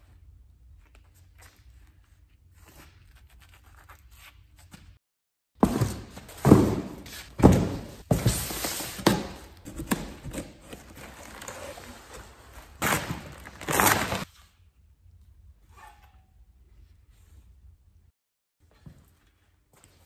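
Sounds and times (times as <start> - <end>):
plastic and cardboard packaging rustling: 5.6 - 14.3.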